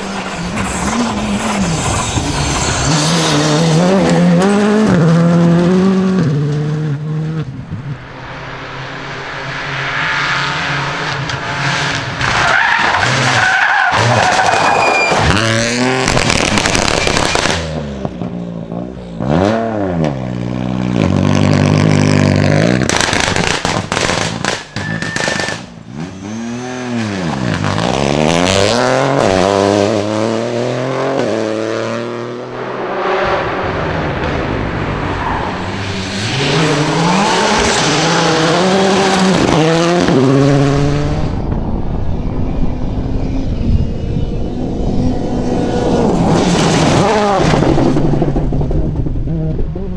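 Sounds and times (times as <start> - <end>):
rally car engines revving: 0.0 - 49.9
sharp cracks: 16.0 - 17.8, 22.8 - 25.8.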